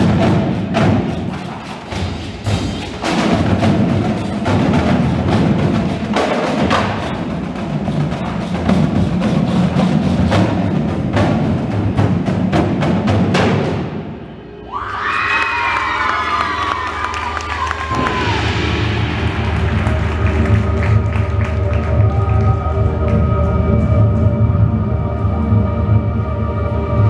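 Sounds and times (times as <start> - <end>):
snare drums: 0.0 - 14.2, 17.3 - 22.5
tenor drums: 0.0 - 14.3, 17.6 - 27.0.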